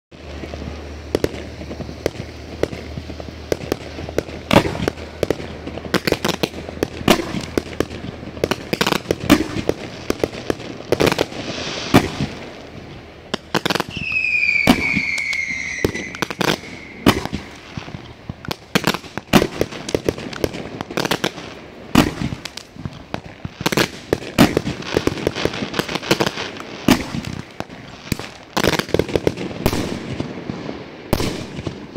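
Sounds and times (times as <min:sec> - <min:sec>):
fireworks launch thumps and bursts: 0:00.3 - 0:31.9
high falling tone: 0:13.9 - 0:17.8.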